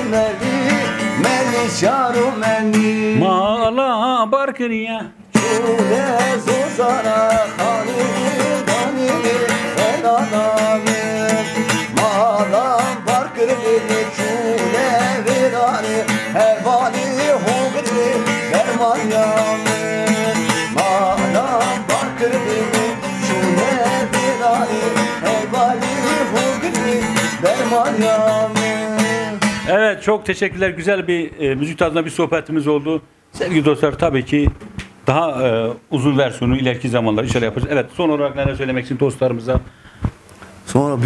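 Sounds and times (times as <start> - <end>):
long-necked lute playing: 0.0 - 3.3, 5.4 - 29.8
man singing: 0.0 - 30.0.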